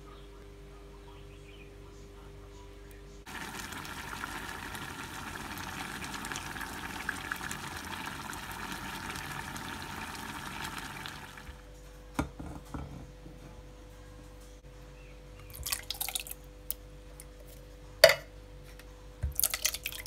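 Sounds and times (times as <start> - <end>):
sauce bubbling in a pot: 3.3 - 11.6.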